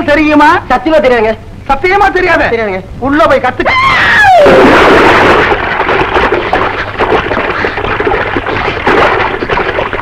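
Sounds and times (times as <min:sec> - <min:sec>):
loud splash: 0:04.4 - 0:10.0
choppy splashing in water: 0:04.6 - 0:10.0.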